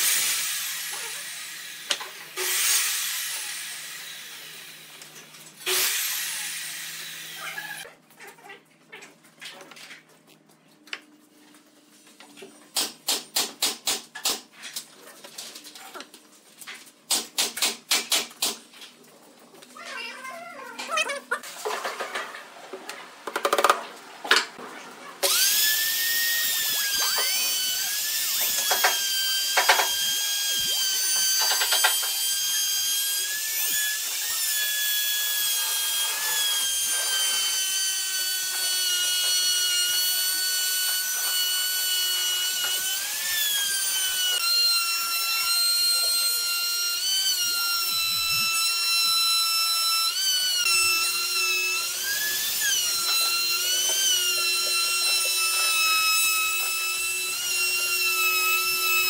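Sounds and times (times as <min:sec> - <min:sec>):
router whining while cutting wood: 0:00.0 - 0:05.0, 0:05.6 - 0:07.9, 0:25.2 - 0:59.0.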